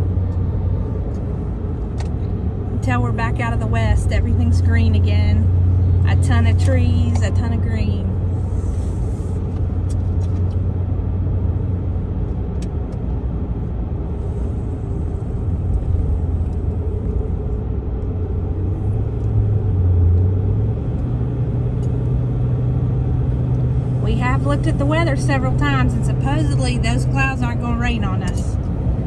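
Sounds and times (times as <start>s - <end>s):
car engine and road noise: 0.0s - 29.0s
low hum: 0.0s - 29.0s.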